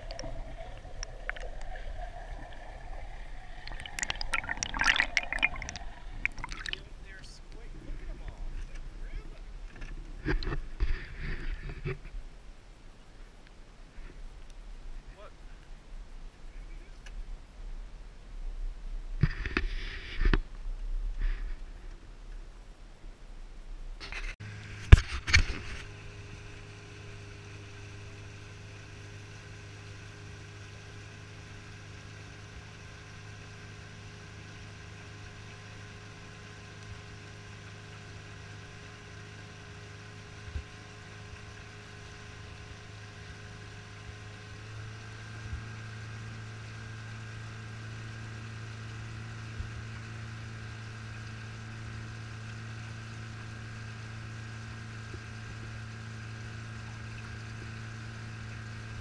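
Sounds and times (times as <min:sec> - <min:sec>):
boat motor humming: 0:00.0 - 0:11.9.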